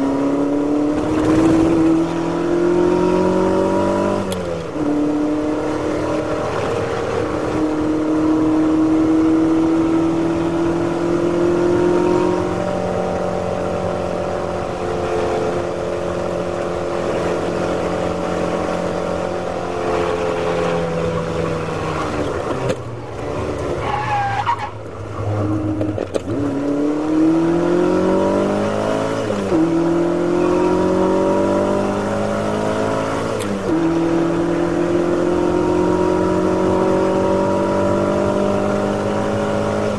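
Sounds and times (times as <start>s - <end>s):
race car engine revving: 0.0s - 39.9s
tyre squeal: 23.8s - 25.5s.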